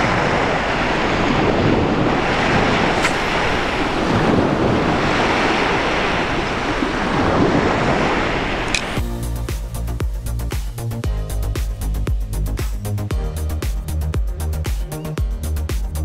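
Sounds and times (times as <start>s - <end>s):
waves breaking on a beach: 0.0s - 9.0s
wind buffeting the microphone: 0.0s - 9.1s.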